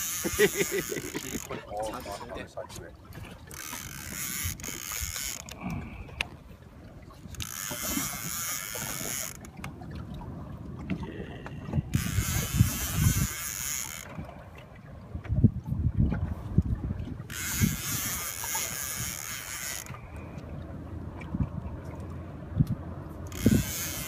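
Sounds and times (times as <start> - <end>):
fishing reel gears whirring: 0.0 - 2.1, 3.1 - 9.5, 11.8 - 14.3, 17.2 - 20.4, 23.2 - 24.0.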